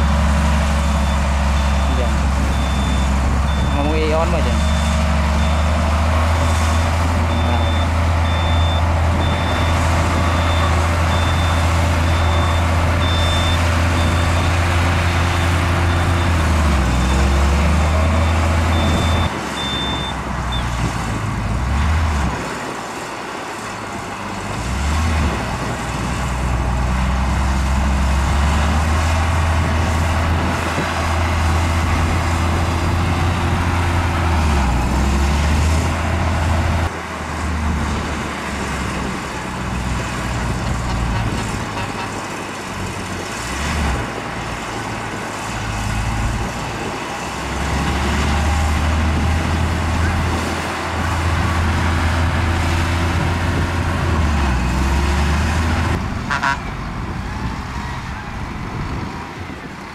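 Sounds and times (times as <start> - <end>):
diesel machinery engine: 0.0 - 59.9
reversing alarm beeping: 0.8 - 5.7, 7.3 - 14.6, 18.1 - 20.8.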